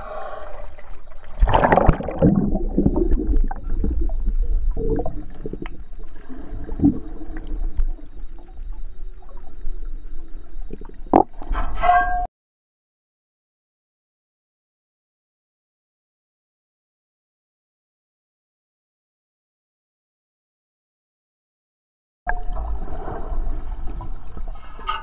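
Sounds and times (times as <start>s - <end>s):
water surge: 0.0s - 7.8s
water sloshing and gurgling: 0.0s - 12.3s, 22.3s - 25.0s.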